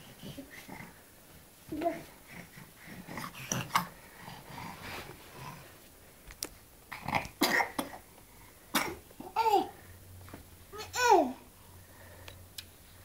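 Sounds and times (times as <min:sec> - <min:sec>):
baby grunting and coughing: 0:06.9 - 0:08.1, 0:08.7 - 0:09.8.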